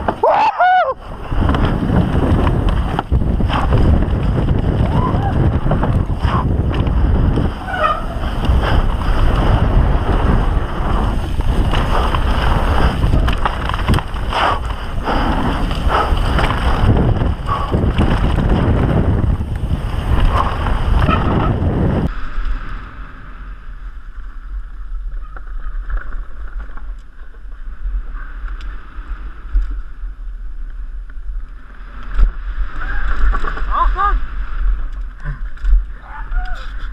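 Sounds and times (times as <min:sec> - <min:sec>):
wind rushing over microphone: 0:00.0 - 0:36.9
bike frame rattling and knocking: 0:11.1 - 0:14.8.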